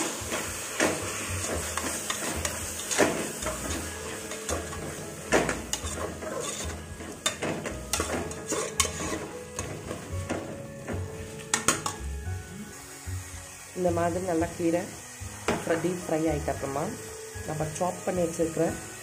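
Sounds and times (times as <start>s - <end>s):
greens sizzling in a pot: 0.0s - 19.0s
metal spoon scraping a pot: 1.4s - 10.1s.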